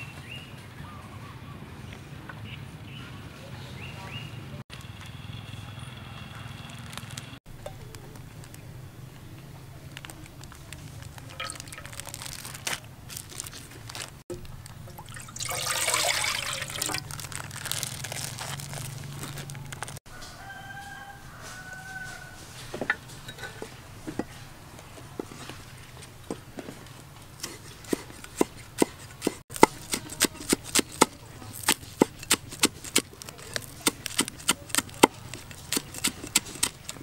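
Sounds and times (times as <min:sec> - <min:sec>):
liquid pouring into metal pot: 0:11.3 - 0:12.1, 0:14.9 - 0:17.2
rooster crowing: 0:20.1 - 0:22.6.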